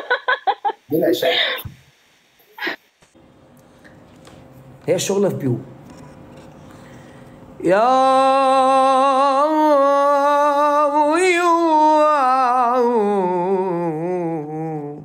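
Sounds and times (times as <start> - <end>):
person singing drawn-out note: 7.6 - 15.0.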